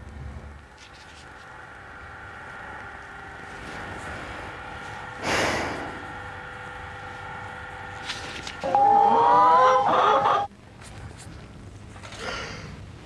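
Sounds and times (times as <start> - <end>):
faint hum of held tones: 0.0 - 13.0.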